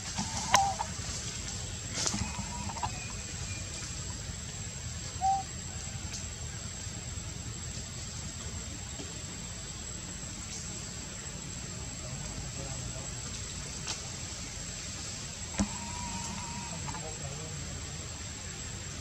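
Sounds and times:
cluck-like animal calls: 0.0 - 1.1, 1.9 - 4.2, 15.5 - 17.4
outdoor background noise: 0.0 - 19.0.

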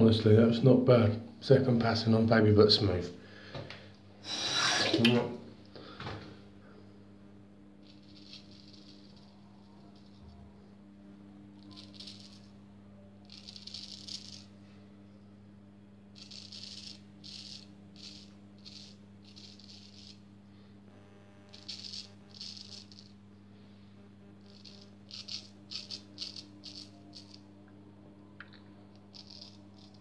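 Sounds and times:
steady low hum: 0.0 - 30.0
razor scraping stubble: 7.8 - 10.4, 11.6 - 12.5, 13.2 - 14.5, 16.2 - 20.2, 21.0 - 23.2, 24.2 - 27.5, 28.9 - 30.0.

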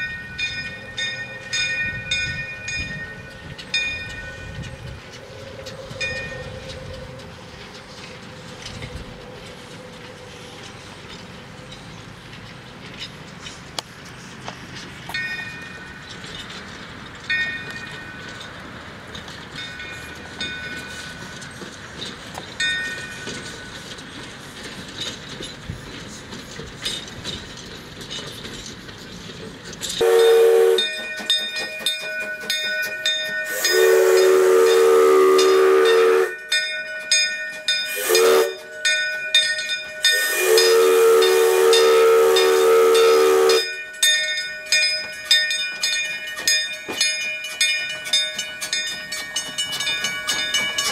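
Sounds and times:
steam locomotive hissing: 0.0 - 50.9
steam whistle blasts: 30.0 - 31.1, 33.4 - 36.4, 37.9 - 38.9, 40.0 - 43.8.

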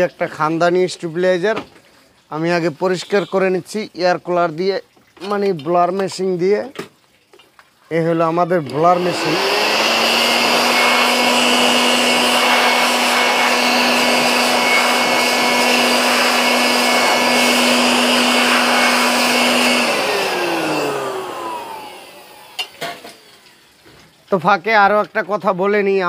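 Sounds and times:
electric air blower whining: 8.5 - 22.8.

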